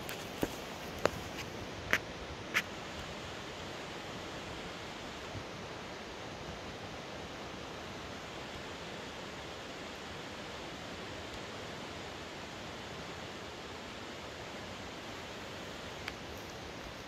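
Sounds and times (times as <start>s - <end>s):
river rushing: 0.0s - 17.0s.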